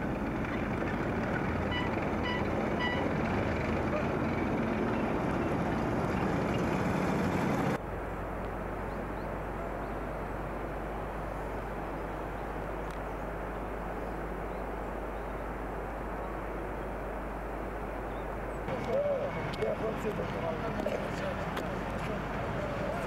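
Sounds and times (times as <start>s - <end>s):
truck driving past: 0.0s - 7.8s, 18.7s - 23.0s
constant low hum: 0.0s - 23.0s.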